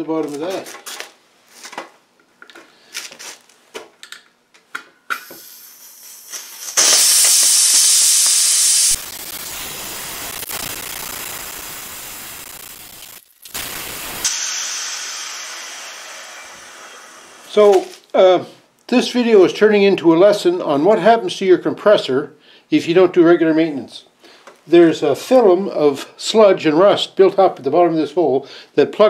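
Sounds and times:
compressed air hissing: 5.1s - 17.6s.

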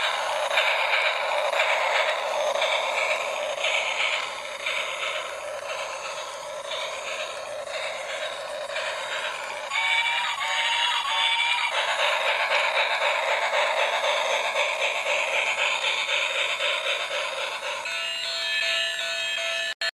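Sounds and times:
toy train whistle tune: 0.0s - 17.1s, 17.8s - 19.9s
electronic hissing chug: 0.0s - 18.4s.

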